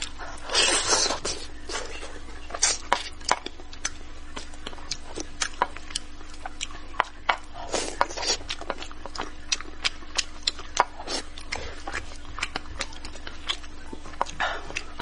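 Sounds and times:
slurping: 0:00.0 - 0:03.0.

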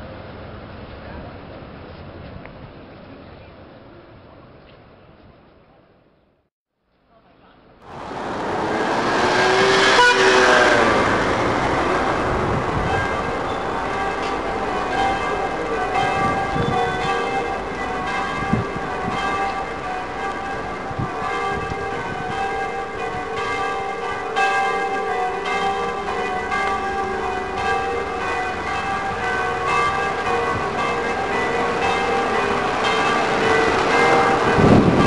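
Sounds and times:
low street traffic: 0:00.0 - 0:06.2, 0:07.2 - 0:35.0
church bells pealing: 0:07.9 - 0:35.0.

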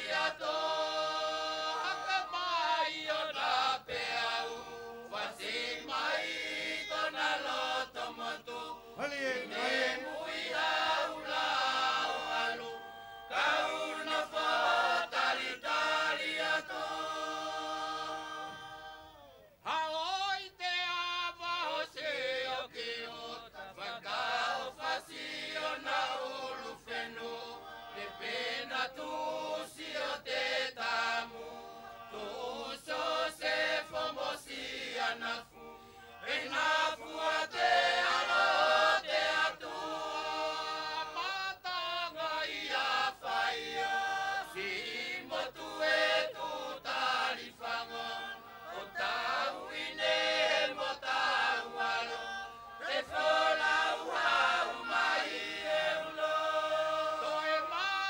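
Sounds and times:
group singing together: 0:00.0 - 0:58.0.

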